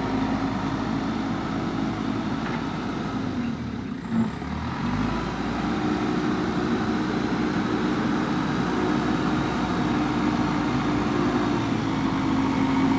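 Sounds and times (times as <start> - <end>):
diesel engine running under load: 0.0 - 12.9.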